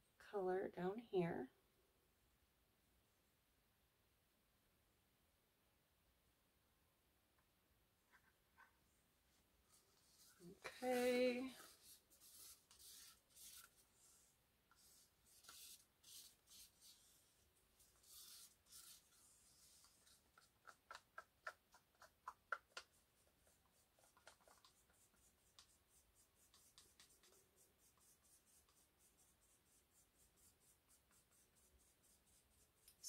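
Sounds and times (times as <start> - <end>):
stir stick scraping paint cup: 9.7 - 33.0.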